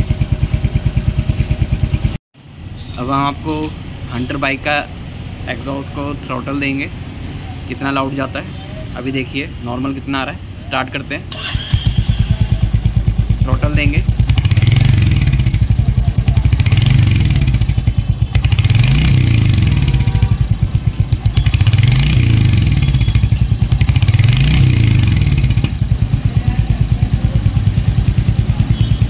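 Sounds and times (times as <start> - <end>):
motorcycle engine revving: 0.0 - 2.2, 11.3 - 29.0.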